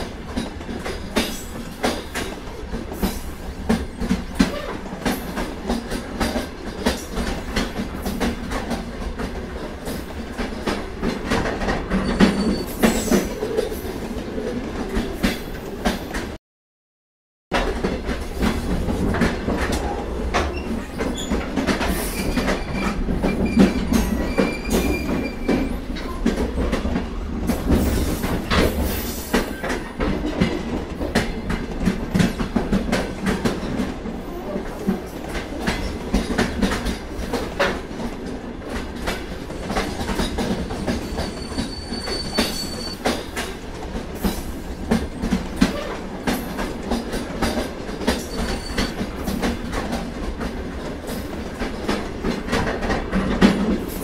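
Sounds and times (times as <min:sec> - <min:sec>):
train cars rumbling on rails: 0:00.0 - 0:16.4, 0:17.5 - 0:54.0
high wheel squeals: 0:41.0 - 0:43.1, 0:48.2 - 0:49.0.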